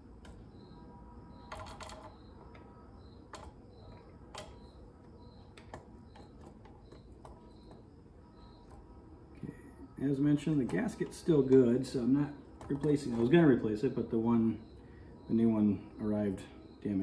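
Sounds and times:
faint high chirp: 0.3 - 12.2.

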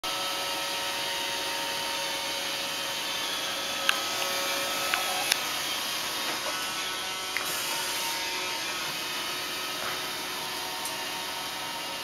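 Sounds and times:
robot vacuum whirring: 0.1 - 12.0.

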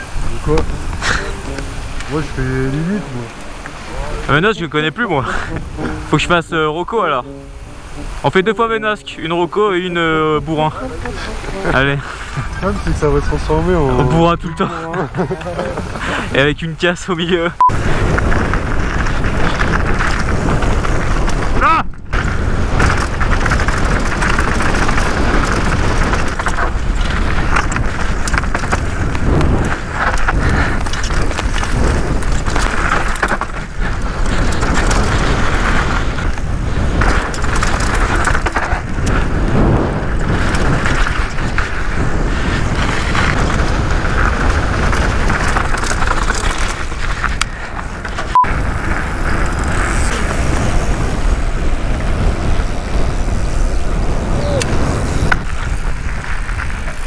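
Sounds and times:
wind rush on microphone: 0.0 - 57.0
bike tyres rattling over dirt: 15.2 - 57.0.

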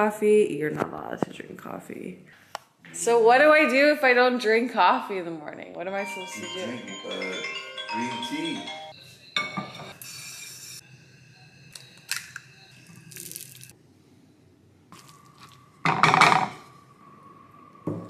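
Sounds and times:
eggs cracking: 13.1 - 13.7.

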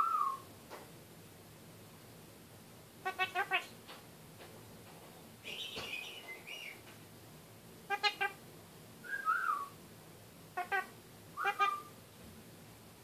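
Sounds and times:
parakeet whistling and chattering: 3.0 - 3.7, 5.5 - 6.8, 7.9 - 8.4, 10.6 - 12.0.

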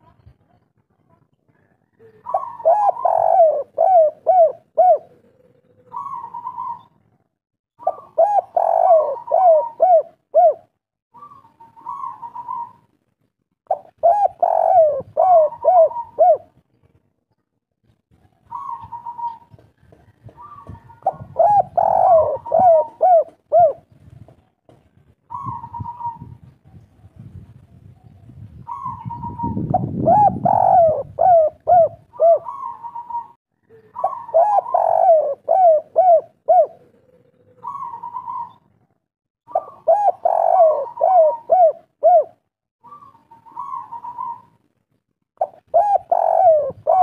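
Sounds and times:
dove cooing: 2.0 - 7.0, 7.8 - 12.9, 13.7 - 16.6, 18.4 - 23.9, 25.3 - 26.5, 28.6 - 44.6, 45.4 - 47.0.

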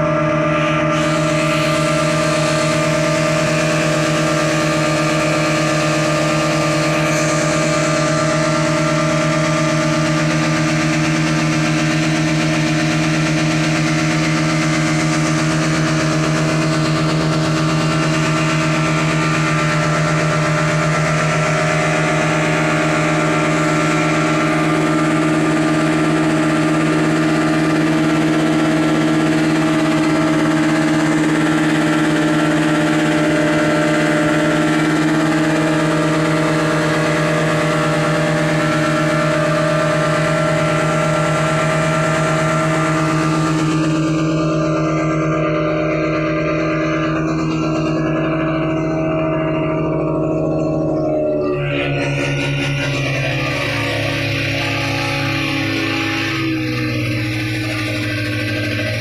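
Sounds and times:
outboard motors running: 0.0 - 59.0
rushing spraying wake: 0.9 - 43.6.

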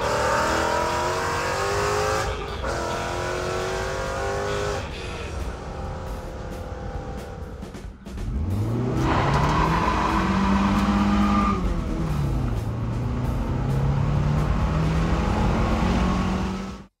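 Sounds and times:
car engine accelerating: 0.0 - 16.9.

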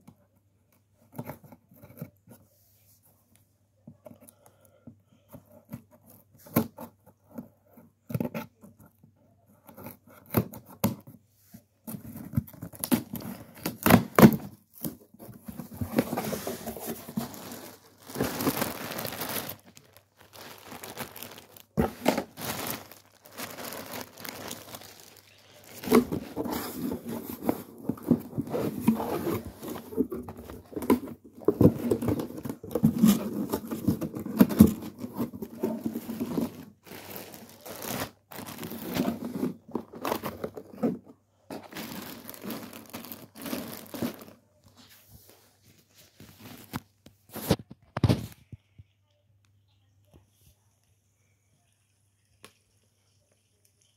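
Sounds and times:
plastic bag crinkling and tearing: 12.6 - 40.9, 41.5 - 44.4.

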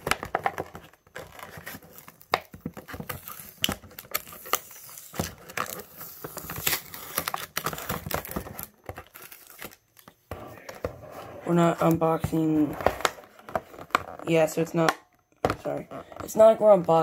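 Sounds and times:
plastic packaging cut and crinkling: 0.0 - 10.2.

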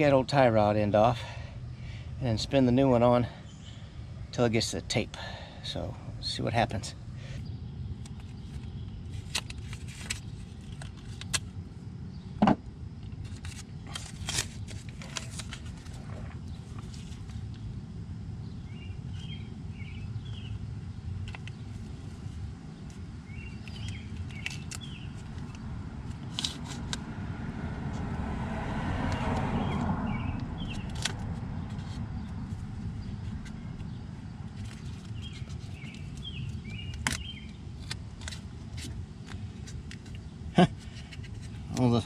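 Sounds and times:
steady low rumble: 0.0 - 42.0
tape crinkling and clicking: 8.0 - 11.6, 13.0 - 17.6, 22.8 - 27.0, 30.7 - 40.2
bird chirping: 18.4 - 22.0, 22.8 - 26.3, 29.1 - 37.9
car passing: 24.8 - 36.9.

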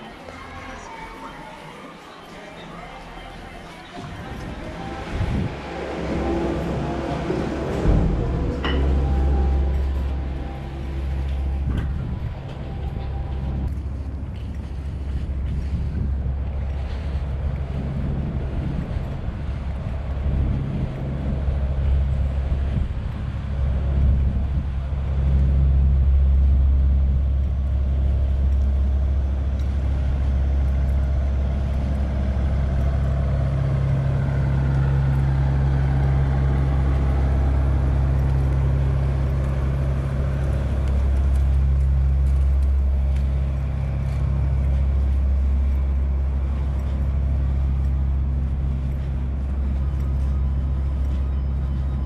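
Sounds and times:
road traffic rumble: 0.0 - 52.0.

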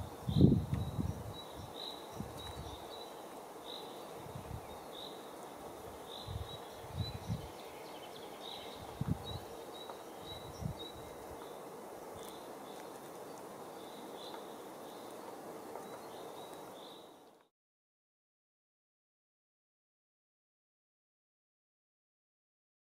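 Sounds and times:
faint hiss: 0.0 - 17.5.

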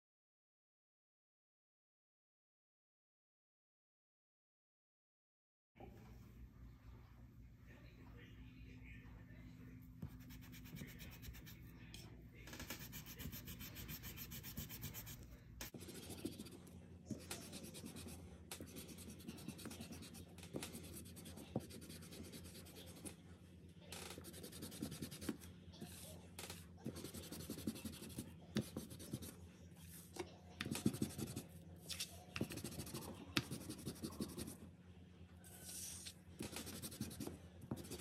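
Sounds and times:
eraser rubbing on paper: 12.5 - 23.1, 24.1 - 26.0, 26.9 - 29.3, 30.6 - 31.5, 32.4 - 34.6, 35.6 - 38.0.

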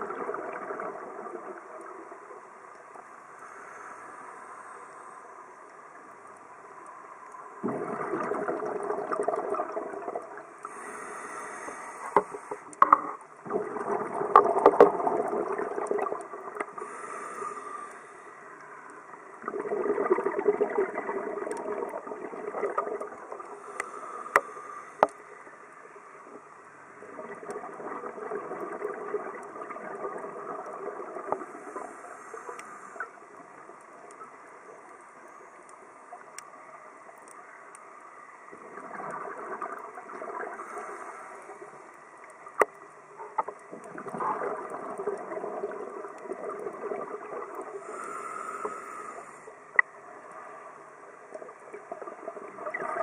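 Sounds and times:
exhaled bubbles underwater: 0.0 - 2.4, 7.6 - 17.2, 19.1 - 25.1, 26.2 - 35.0, 38.4 - 50.4, 51.2 - 53.0.

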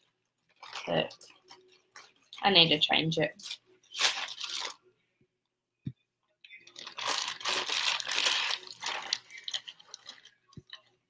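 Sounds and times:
plastic bag crinkling: 0.5 - 2.4, 3.4 - 4.8, 6.6 - 10.9.

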